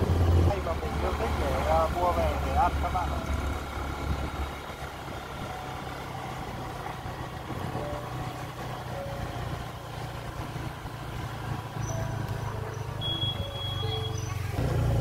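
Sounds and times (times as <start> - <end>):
motorbike engine running: 0.0 - 15.0
road noise: 0.0 - 15.0.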